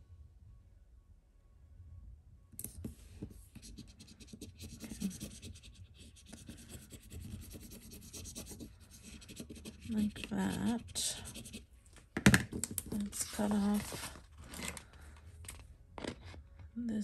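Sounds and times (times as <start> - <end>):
tweezers scratching paper sticker: 3.7 - 11.6.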